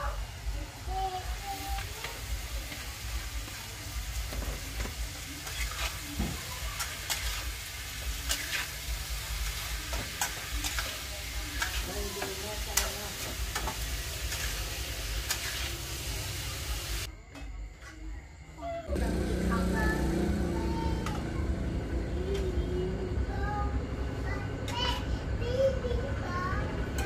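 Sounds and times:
vegetables sizzling: 0.0s - 17.1s, 18.9s - 27.0s
metal spatula scraping wok: 5.3s - 16.4s.

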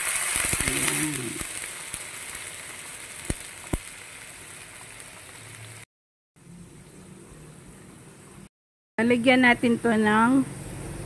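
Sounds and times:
food sizzling in a wok: 0.0s - 5.9s.

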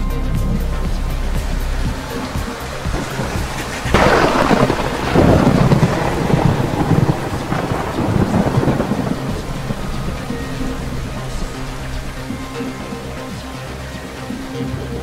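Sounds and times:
thunderclap with rolling rumble: 0.0s - 15.0s.

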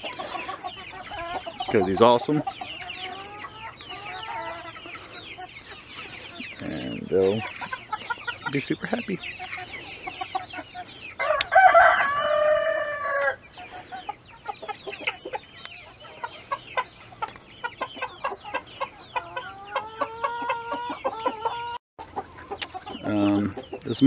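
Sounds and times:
hens clucking: 0.0s - 24.0s
rooster crowing: 11.2s - 13.4s.

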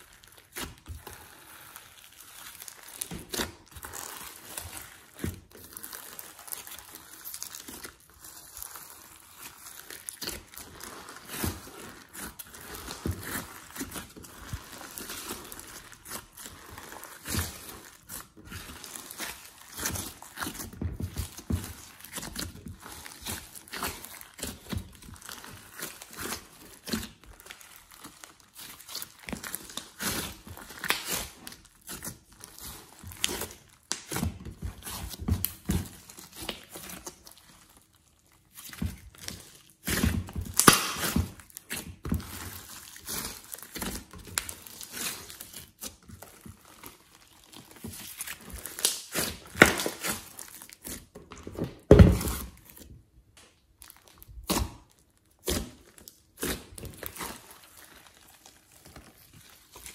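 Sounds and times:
sticky slime squelches: 0.0s - 59.9s.

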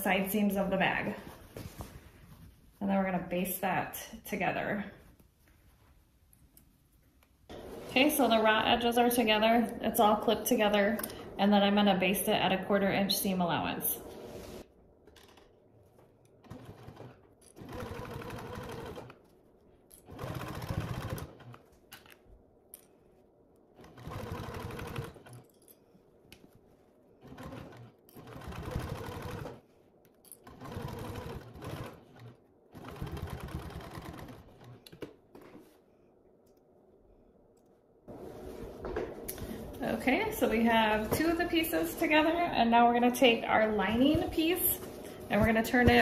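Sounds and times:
sewing machine stitching: 16.4s - 19.2s, 20.1s - 21.7s, 23.8s - 25.4s, 27.2s - 29.6s, 30.4s - 35.1s.

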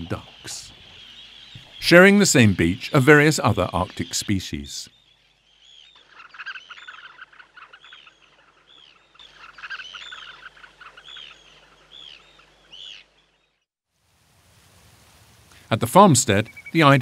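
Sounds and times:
shorebirds piping: 0.0s - 13.4s, 15.6s - 17.0s
low bird chatter: 0.0s - 13.6s.

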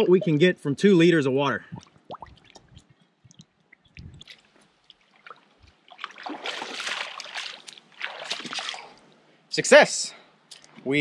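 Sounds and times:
feet splashing in shallow water: 3.8s - 9.1s.

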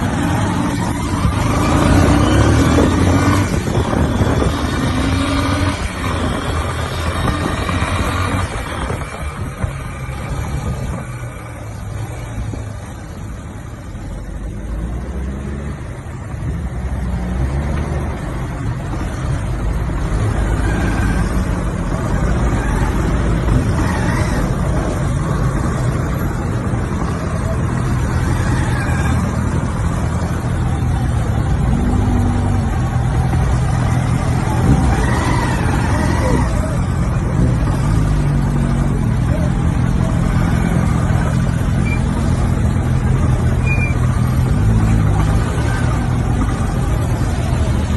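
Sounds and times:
traffic engines rumbling: 0.0s - 47.9s.

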